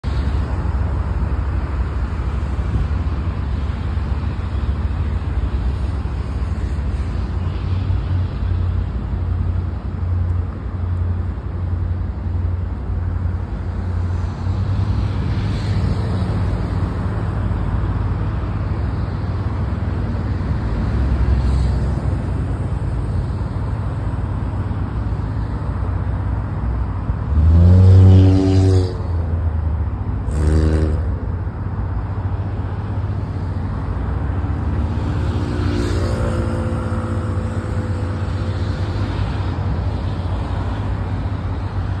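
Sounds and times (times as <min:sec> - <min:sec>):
low rumble of harbour noise: 0:00.0 - 0:42.0
low-pitched ship's horn: 0:27.3 - 0:29.2, 0:30.2 - 0:31.2.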